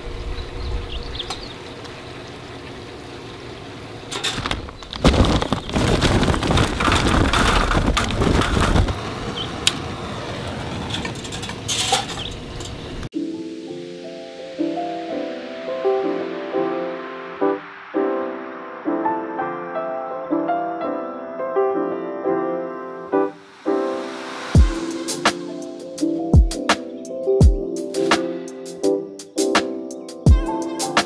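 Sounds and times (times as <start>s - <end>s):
charcoal briquettes clattering: 4.0s - 9.7s, 10.5s - 13.1s
bag crinkling: 4.2s - 9.1s
music: 13.1s - 31.0s.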